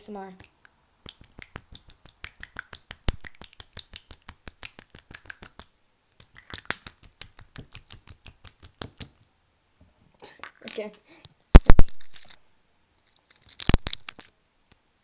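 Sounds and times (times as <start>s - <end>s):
slime squishing and popping: 0.4s - 9.2s.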